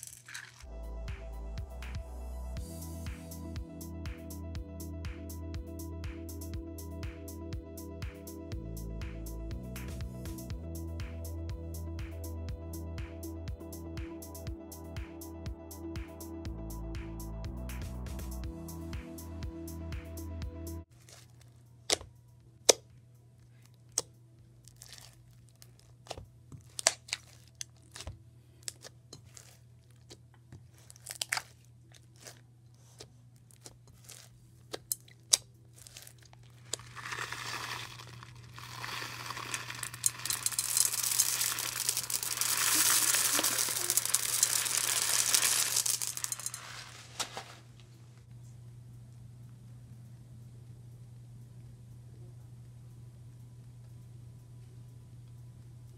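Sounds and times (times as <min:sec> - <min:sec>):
plastic beads pouring: 0:00.0 - 0:00.7, 0:35.8 - 0:47.5
slime squishing with clicks and pops: 0:21.9 - 0:22.9, 0:23.8 - 0:24.1, 0:24.7 - 0:32.4, 0:33.0 - 0:40.5.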